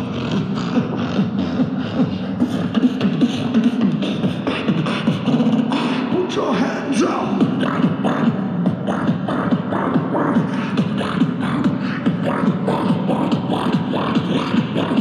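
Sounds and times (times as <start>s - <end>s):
man beatboxing: 0.0s - 15.0s
man singing low line: 0.0s - 15.0s
vocal glides: 0.0s - 15.0s.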